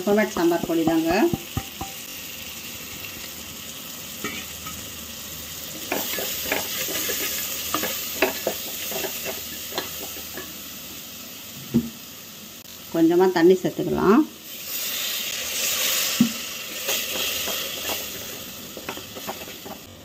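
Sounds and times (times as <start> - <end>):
food sizzling in oil: 0.0 - 20.0
spatula scraping and knocking pot: 0.5 - 2.0, 5.8 - 10.5, 16.9 - 19.9.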